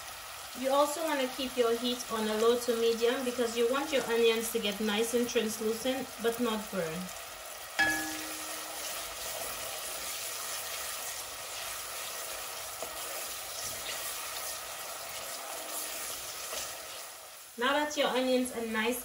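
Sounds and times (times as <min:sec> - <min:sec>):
onions sizzling in hot oil: 0:00.0 - 0:19.0
sharp knock with ring: 0:07.8 - 0:08.7.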